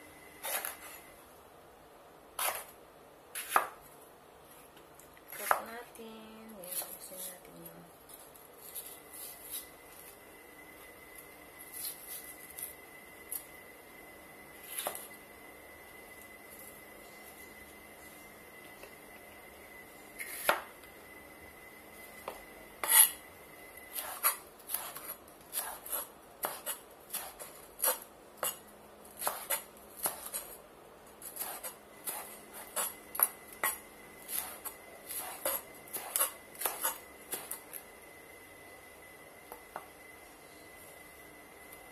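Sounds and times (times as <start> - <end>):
faint high-pitched tone: 37.1 - 41.9.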